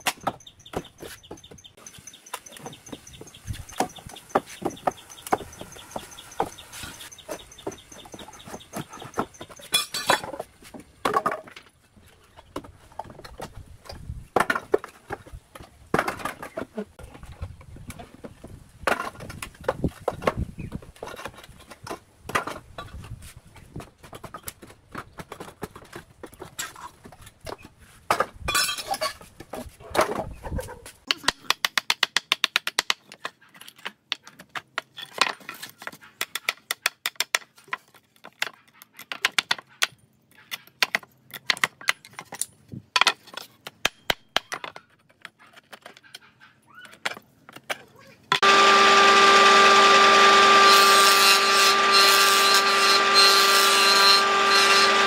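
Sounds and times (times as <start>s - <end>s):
wood knocking and scraping: 0.0s - 30.9s.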